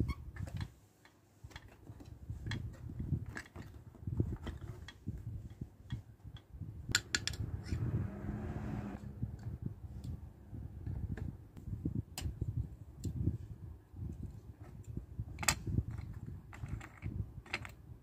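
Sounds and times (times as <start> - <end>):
soft handling noise: 0.3 - 6.5.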